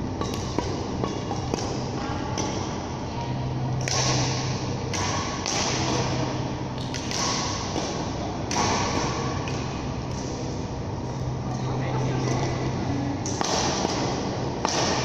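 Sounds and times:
steady low hum: 0:00.0 - 0:15.0
thuds and taps from badminton play: 0:00.2 - 0:01.8, 0:03.8 - 0:06.2, 0:06.8 - 0:10.3, 0:13.3 - 0:15.0.

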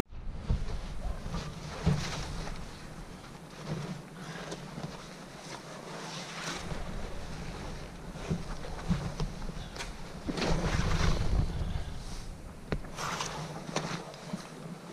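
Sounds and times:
wind on microphone: 0:00.1 - 0:03.2, 0:06.6 - 0:13.6
canvas tarp rustling: 0:00.2 - 0:14.9.

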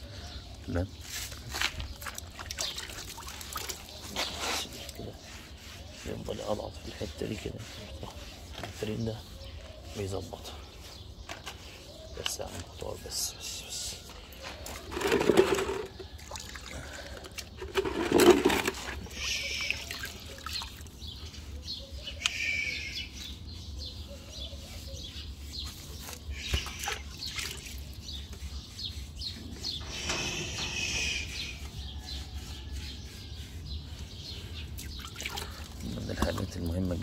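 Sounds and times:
water sloshing in a bucket: 0:01.2 - 0:08.9, 0:14.6 - 0:21.1, 0:25.9 - 0:28.4, 0:34.6 - 0:37.0
water trickling and dripping: 0:02.0 - 0:04.2.

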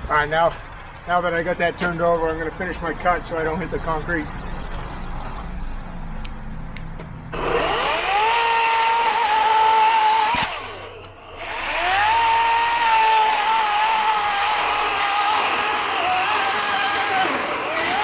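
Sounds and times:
electric chainsaw cutting log: 0:07.3 - 0:18.0.

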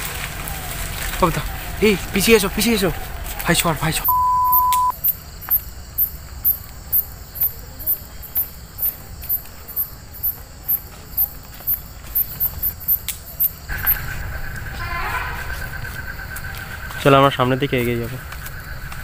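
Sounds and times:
crickets chirping: 0:00.0 - 0:19.0
high insect hum: 0:00.0 - 0:19.0.

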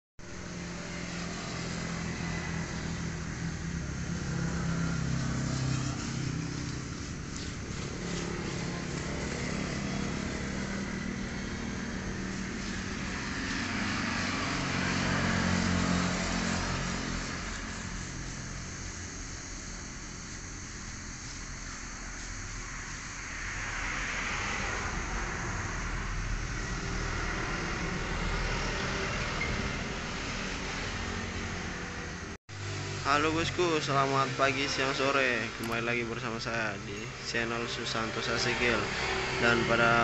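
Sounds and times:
motor engine running: 0:00.4 - 0:22.8.

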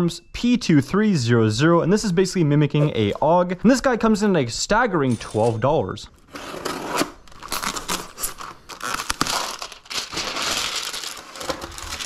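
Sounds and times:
plastic sheet crinkling: 0:07.3 - 0:12.0.

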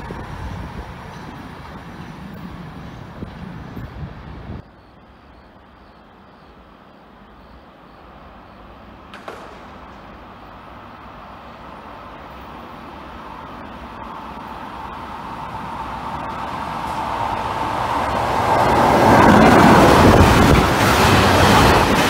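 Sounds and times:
freight train approaching: 0:00.0 - 0:22.0.

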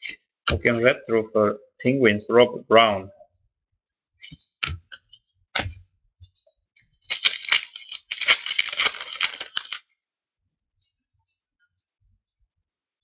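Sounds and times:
card pack wrapper tearing: 0:06.9 - 0:09.9.

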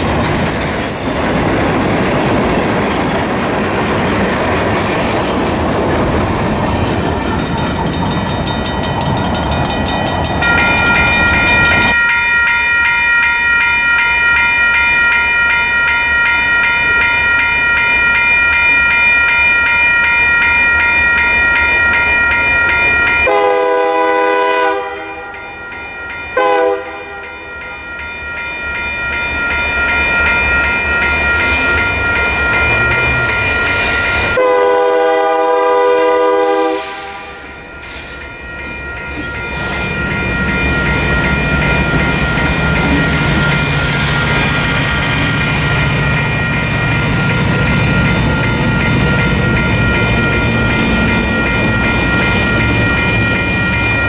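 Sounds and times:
locomotive horn blasts: 0:23.2 - 0:25.3, 0:26.4 - 0:27.3, 0:34.4 - 0:37.5.

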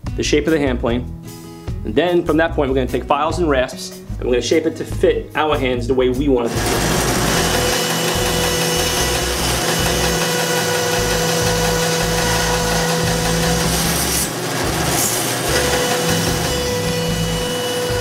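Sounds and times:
bandsaw motor hum: 0:06.5 - 0:18.0
saw blade rasping through wood: 0:06.5 - 0:18.0.

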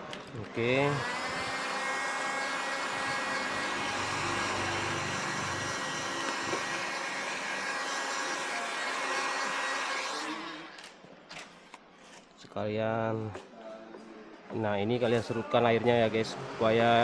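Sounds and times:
heat gun fan blowing: 0:00.0 - 0:10.8.

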